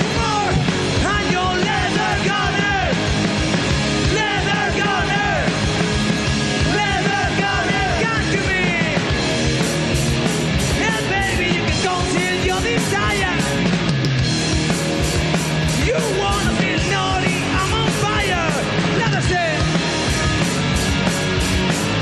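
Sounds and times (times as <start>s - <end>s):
man singing: 0.0s - 3.0s, 4.1s - 5.5s, 6.6s - 9.0s, 10.8s - 13.6s, 15.8s - 19.7s
hard rock band playing: 0.0s - 22.0s.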